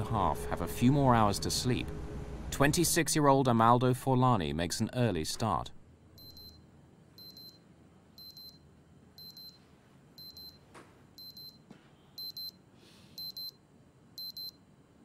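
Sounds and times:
wristwatch alarm double beeps: 6.2s - 6.6s, 7.2s - 7.6s, 8.2s - 8.6s, 9.2s - 9.6s, 10.2s - 10.6s, 11.2s - 11.6s, 12.2s - 12.6s, 13.2s - 13.6s, 14.2s - 14.6s.

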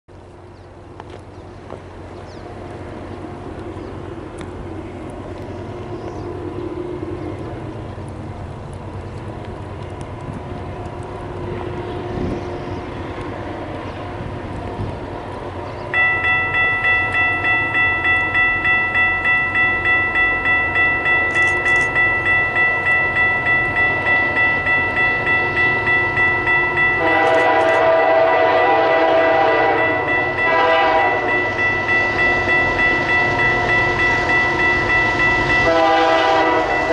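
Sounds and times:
locomotive rumbling: 0.1s - 36.9s
railroad crossing bell ringing: 15.8s - 36.9s
locomotive horn blast: 26.9s - 31.6s, 35.3s - 36.9s.

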